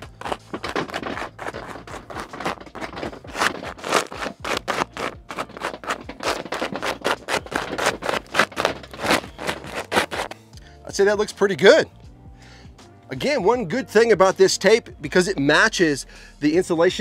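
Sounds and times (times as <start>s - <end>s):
tape crinkling under rubbing hands: 0.0s - 10.4s.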